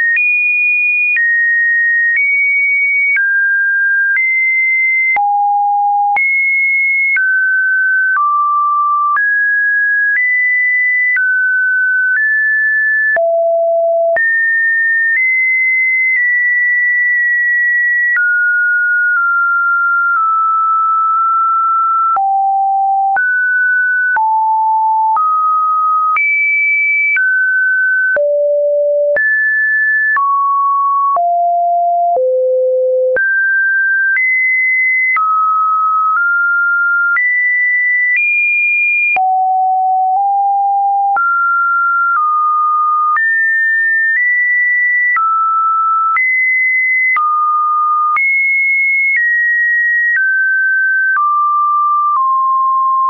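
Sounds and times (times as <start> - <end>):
sine test tone changing pitch: 13.1 - 38.4, 39.1 - 43.2.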